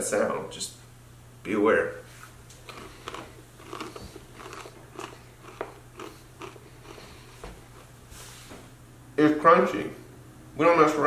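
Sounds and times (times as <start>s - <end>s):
person chewing crunchy granola: 2.5s - 8.0s.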